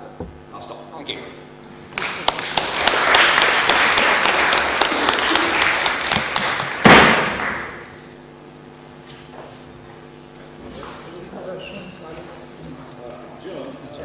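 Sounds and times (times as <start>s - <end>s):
audience applauding: 1.9s - 7.9s
sharp loud thud: 6.8s - 7.7s.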